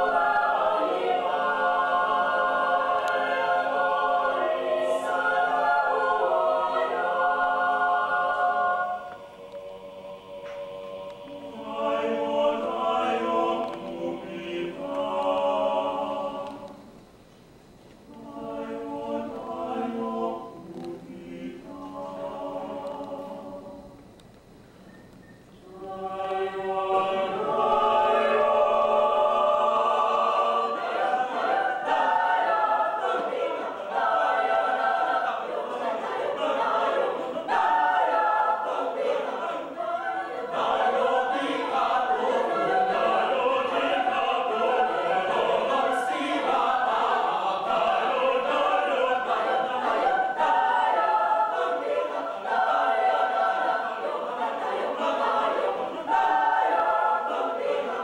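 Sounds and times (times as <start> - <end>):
choir singing a cappella: 0.0 - 17.0, 18.1 - 24.1, 25.6 - 58.0.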